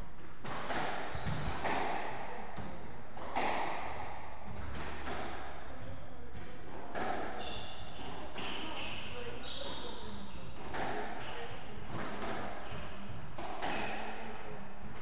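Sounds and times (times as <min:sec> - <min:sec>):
squash ball smacking: 0:00.2 - 0:05.6
shoes squeaking on wooden floor: 0:01.1 - 0:01.7.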